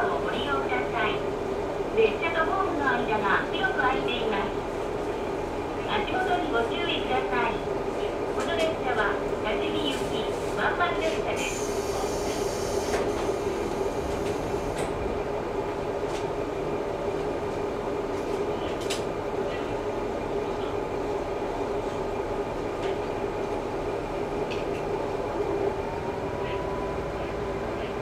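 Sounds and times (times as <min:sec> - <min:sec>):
diesel railcar droning: 0:11.0 - 0:28.0.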